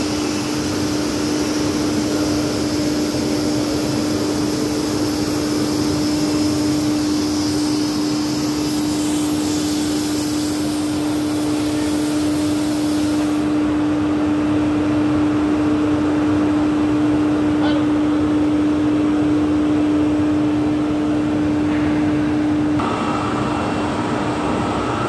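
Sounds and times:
extrusion machinery din: 22.8s - 25.0s.

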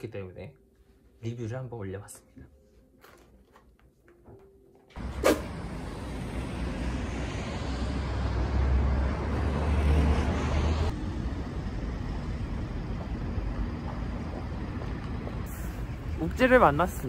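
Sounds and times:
street traffic: 4.9s - 17.0s.

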